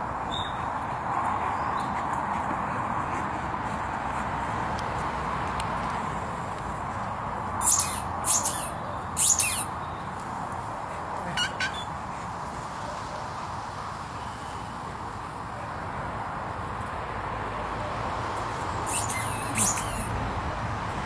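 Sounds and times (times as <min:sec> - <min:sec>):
bird squawks: 0:07.6 - 0:09.7, 0:11.4 - 0:11.9, 0:18.9 - 0:20.1.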